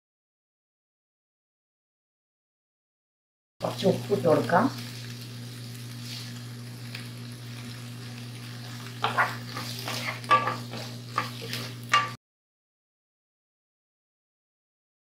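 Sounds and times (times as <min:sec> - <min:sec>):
vegetables sizzling in a pan: 0:03.6 - 0:12.2
spatula scraping and knocking pan: 0:08.6 - 0:12.2.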